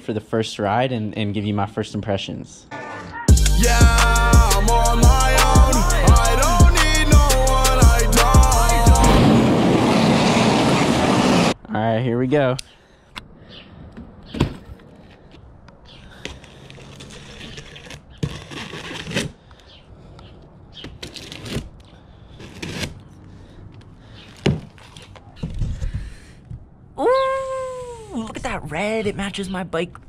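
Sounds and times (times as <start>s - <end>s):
cardboard flaps scraping and tearing: 16.2s - 19.4s, 20.8s - 23.2s
knife slicing tape and cardboard: 16.2s - 19.4s, 20.8s - 23.1s.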